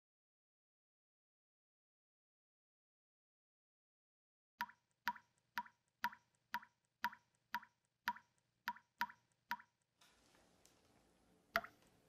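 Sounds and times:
liquid dripping: 4.6 - 10.0, 11.5 - 11.9.

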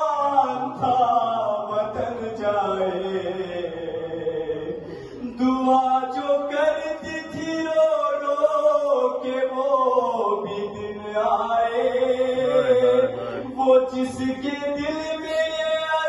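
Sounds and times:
man chanting a lament: 0.0 - 16.0.

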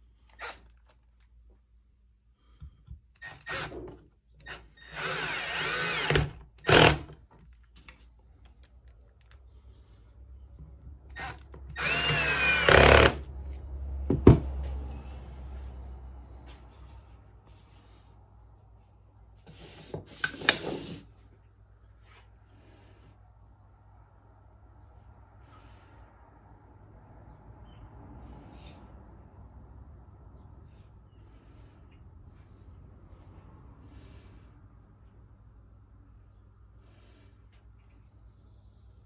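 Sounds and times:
drill driving screws into wood: 0.3 - 1.0, 3.2 - 7.2, 11.1 - 13.3.

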